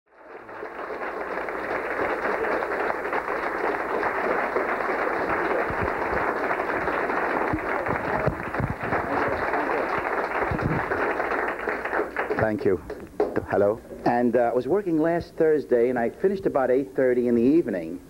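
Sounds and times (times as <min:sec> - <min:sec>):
audience applauding: 0:00.1 - 0:13.7.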